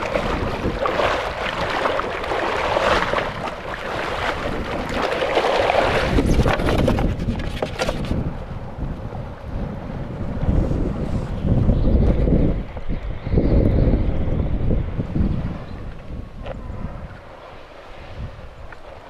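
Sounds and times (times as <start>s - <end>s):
waves splashing against stones: 0.0s - 8.2s
wind buffeting microphone: 0.0s - 19.0s.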